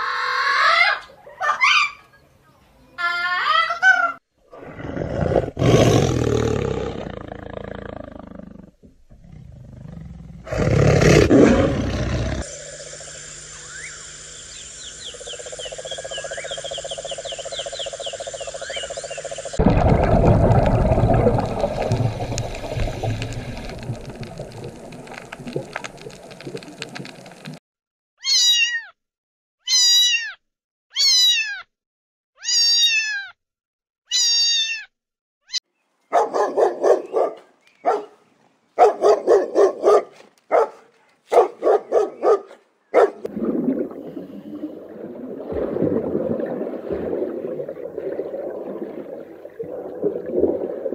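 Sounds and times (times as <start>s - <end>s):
dog barking: 1.2s - 1.9s, 36.1s - 38.2s, 38.8s - 43.3s
cat meowing: 28.2s - 29.0s, 29.7s - 31.7s, 32.4s - 33.4s, 34.1s - 34.9s.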